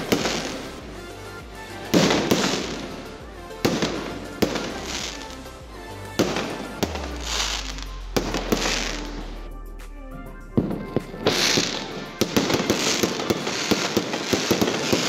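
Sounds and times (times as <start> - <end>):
music playing: 0.0 - 15.0
fireworks bangs: 10.6 - 15.0.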